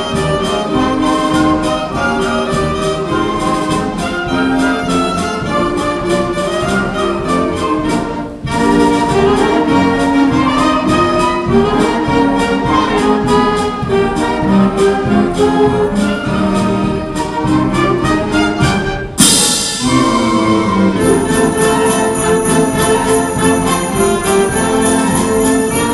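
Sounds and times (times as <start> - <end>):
concert band playing: 0.0 - 25.9
metallic percussion crash: 19.2 - 20.4, 21.0 - 25.9.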